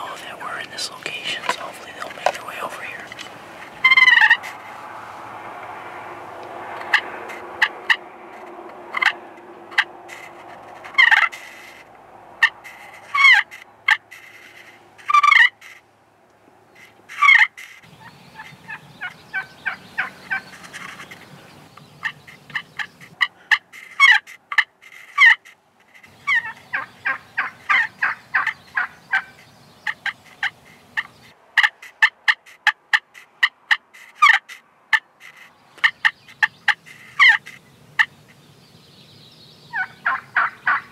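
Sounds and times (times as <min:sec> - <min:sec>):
turkey call yelps and clucks: 0:03.8 - 0:04.6, 0:06.8 - 0:08.0, 0:08.9 - 0:11.8, 0:12.4 - 0:15.8, 0:16.8 - 0:21.2, 0:22.0 - 0:25.6, 0:26.2 - 0:38.2, 0:39.7 - 0:40.9.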